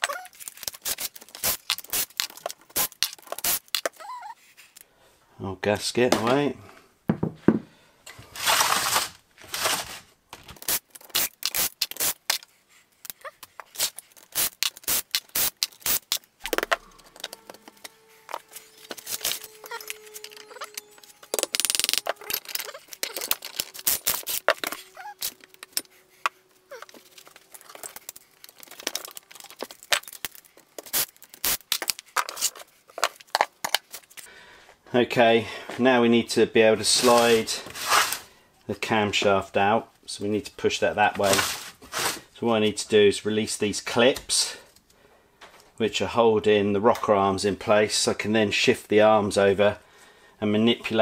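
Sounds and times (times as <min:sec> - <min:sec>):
metal tools clattering: 0:16.5 - 0:25.9.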